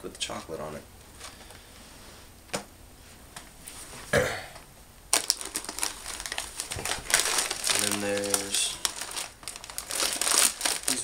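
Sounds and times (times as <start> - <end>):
plastic snack packs crinkling: 5.1 - 11.0.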